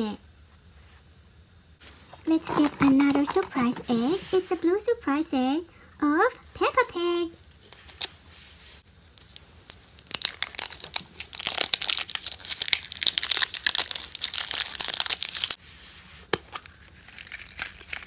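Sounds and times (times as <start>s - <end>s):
plastic wrapper crinkling and tearing: 7.4s - 8.1s, 9.1s - 15.6s, 16.6s - 18.0s.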